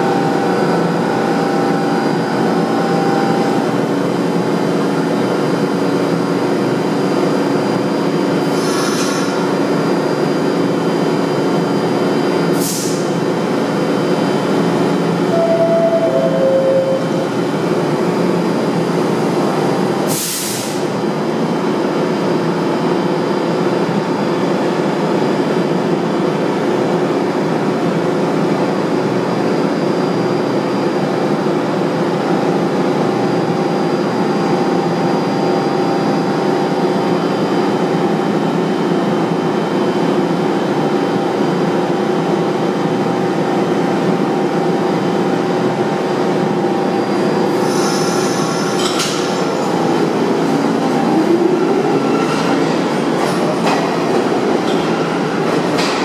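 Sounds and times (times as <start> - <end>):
train equipment hum and whir: 0.0 - 56.0
air hiss: 12.6 - 13.1, 20.1 - 20.8.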